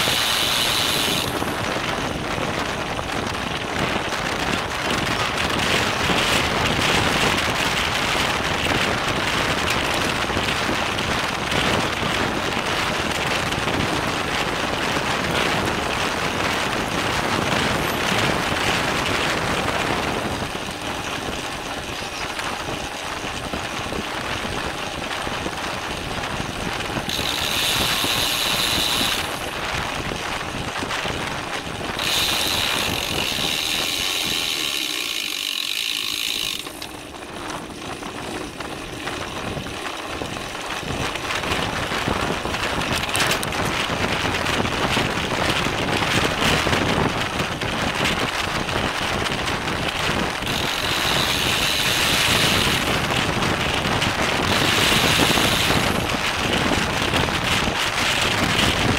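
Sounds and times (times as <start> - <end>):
bicycle freewheel buzzing: 0.0 - 58.9
tyre and road noise: 0.0 - 58.9
wind on microphone: 0.0 - 58.9.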